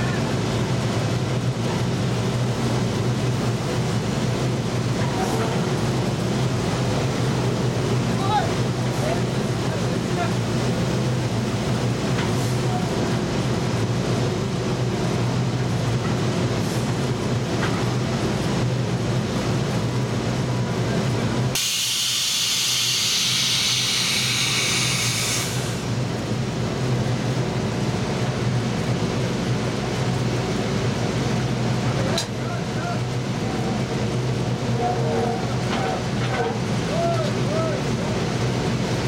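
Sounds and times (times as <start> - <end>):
drilling rig machinery drone: 0.0 - 39.0
loud hiss: 21.6 - 25.9.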